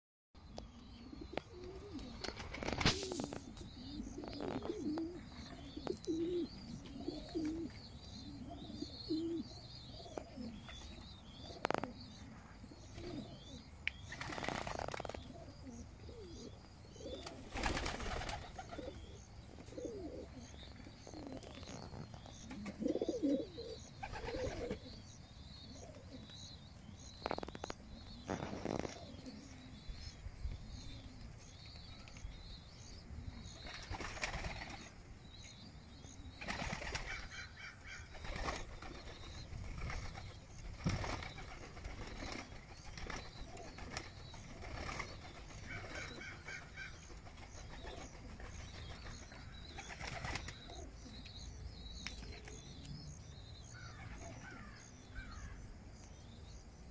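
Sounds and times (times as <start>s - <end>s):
pigeons cooing: 1.0s - 26.4s, 27.3s - 30.0s, 36.1s - 51.3s
wing flaps: 2.2s - 3.6s, 14.1s - 15.2s.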